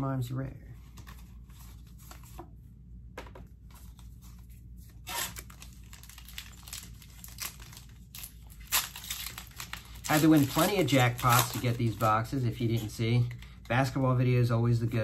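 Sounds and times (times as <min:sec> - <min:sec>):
foil wrapper crinkling: 0:04.9 - 0:13.6
trading cards clicking and rustling: 0:05.1 - 0:13.8.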